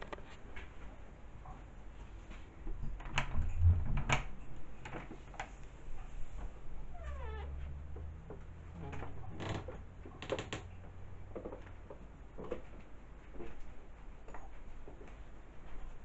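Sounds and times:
low steady hum: 0:00.0 - 0:16.0
soft knocks and clatters: 0:07.5 - 0:16.0.

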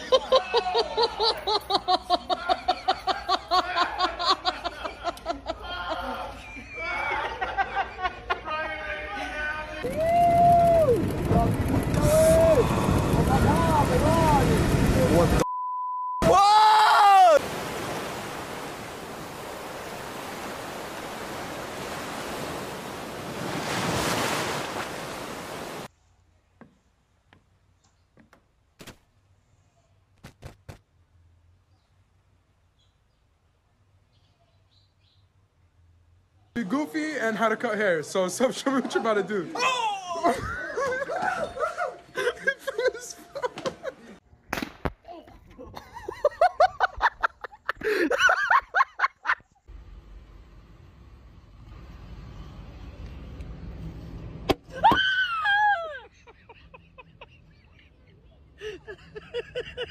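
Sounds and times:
person laughing hard: 0:00.0 - 0:08.4, 0:40.0 - 0:44.1, 0:45.5 - 0:49.4, 0:54.7 - 0:59.9
breaking surf: 0:09.8 - 0:15.4, 0:17.0 - 0:25.9
person shouting: 0:16.2 - 0:17.4, 0:39.6 - 0:40.3.

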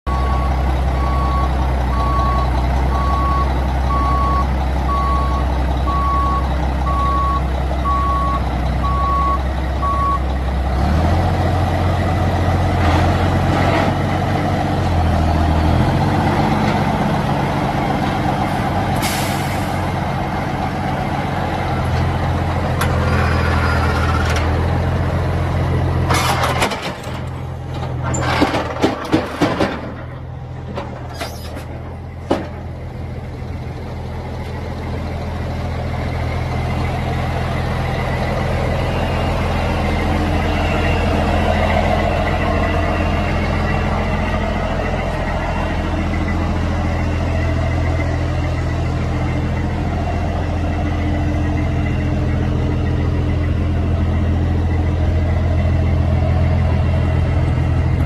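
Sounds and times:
reversing alarm beeping: 0:00.1 - 0:10.3
diesel truck engine running: 0:00.1 - 0:58.0
metal clanks and knocks: 0:26.0 - 0:32.8.

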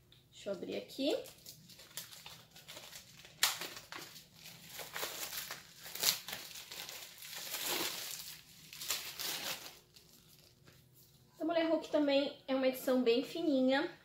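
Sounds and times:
plastic wrap crackling: 0:00.9 - 0:10.8
plastic wrap ripping: 0:01.1 - 0:10.7.

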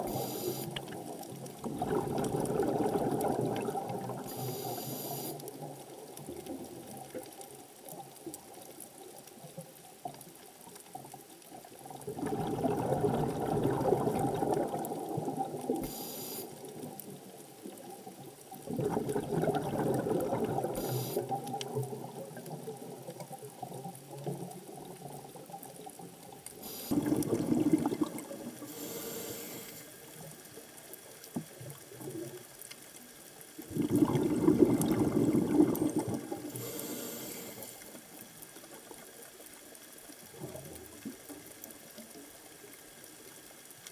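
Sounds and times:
underwater bubbling rushes: 0:00.0 - 0:08.6, 0:11.0 - 0:32.6, 0:33.6 - 0:39.2
underwater low wash: 0:00.0 - 0:43.8
short hisses: 0:00.1 - 0:00.7, 0:04.3 - 0:05.4, 0:15.8 - 0:16.6, 0:26.6 - 0:27.0, 0:28.7 - 0:29.9.

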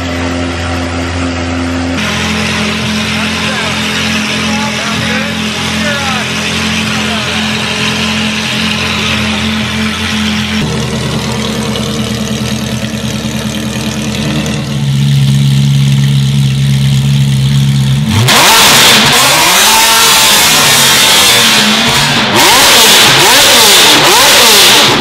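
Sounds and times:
car engine idling: 0:00.0 - 0:25.0
car engine revving hard: 0:02.0 - 0:11.1, 0:18.0 - 0:25.0.

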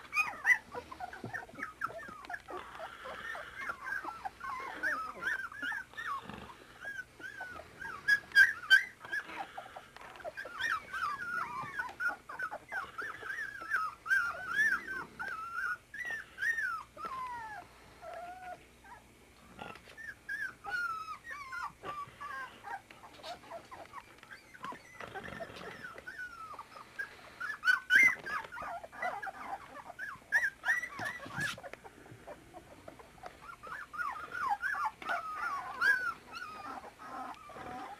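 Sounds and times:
puppies whimpering and squealing: 0:00.0 - 0:37.9.

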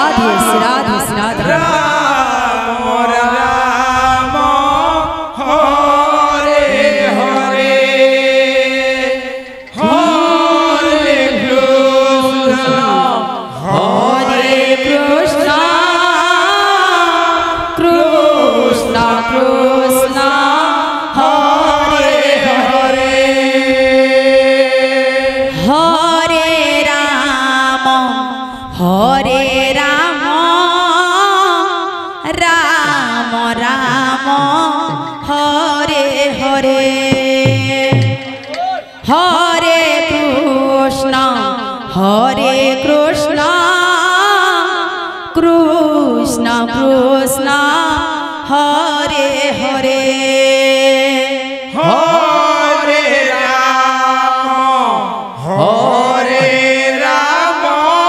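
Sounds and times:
person chanting: 0:00.0 - 0:58.0
barrel drum beating: 0:33.8 - 0:35.5, 0:37.1 - 0:38.7, 0:56.4 - 0:56.8.

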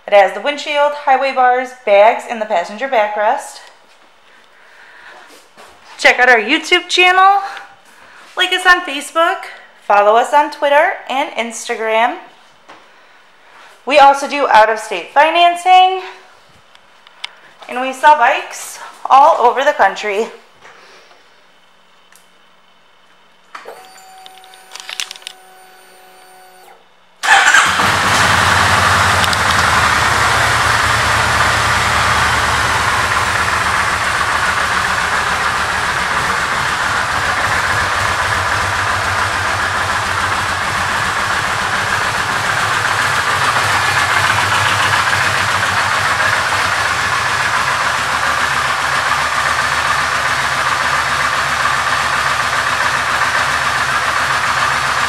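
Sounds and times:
motorcycle engine starting and idling: 0:23.6 - 0:55.0.

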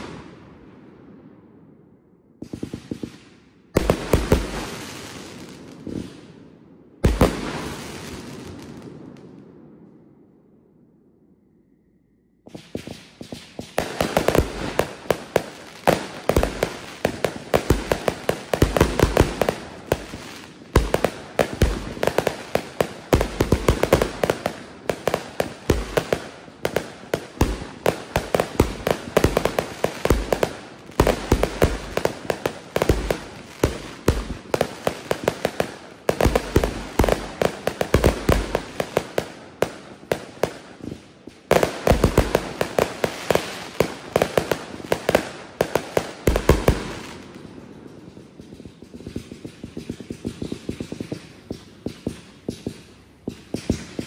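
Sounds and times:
firework cake pops and crackling: 0:12.5 - 0:54.0.

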